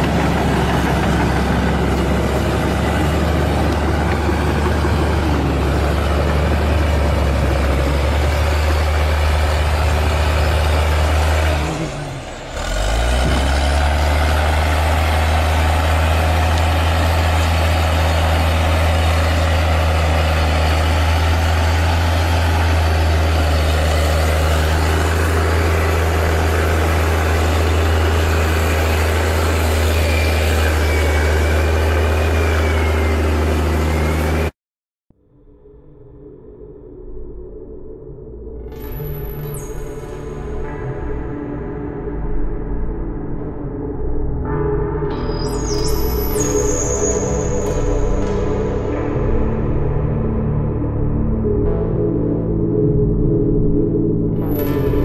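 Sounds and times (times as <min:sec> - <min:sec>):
drone propellers humming: 0:00.0 - 0:34.5.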